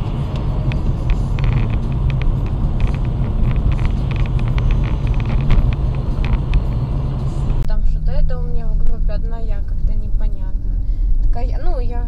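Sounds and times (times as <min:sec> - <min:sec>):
car engine and road rumble: 0:00.0 - 0:12.0
light ticks and rattles: 0:00.2 - 0:07.7.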